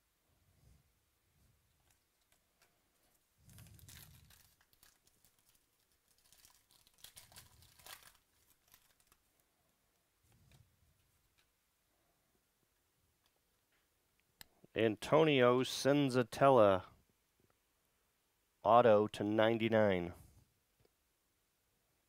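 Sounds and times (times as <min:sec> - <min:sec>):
trading cards rustling: 0:01.8 - 0:09.4.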